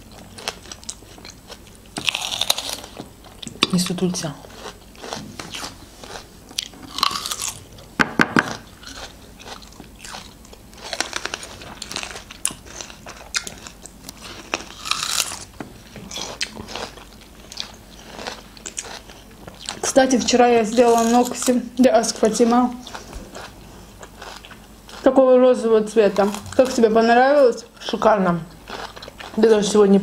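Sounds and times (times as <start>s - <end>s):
people crunching fruit: 0.0s - 25.2s, 27.6s - 30.0s.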